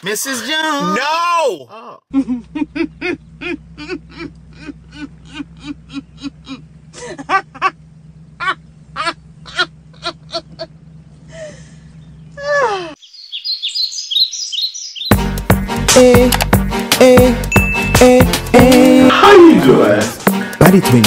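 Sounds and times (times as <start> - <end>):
women laughing: 2.1 - 7.8, 8.4 - 11.7
steady low hum: 2.1 - 12.5
high chirping: 13.0 - 15.2, 17.5 - 18.5.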